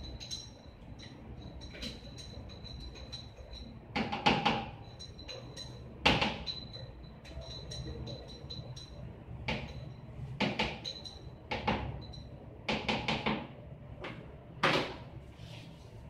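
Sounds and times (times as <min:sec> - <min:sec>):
glass jars clinking: 0:00.0 - 0:10.0, 0:10.6 - 0:12.3
steady low hum: 0:00.0 - 0:16.0.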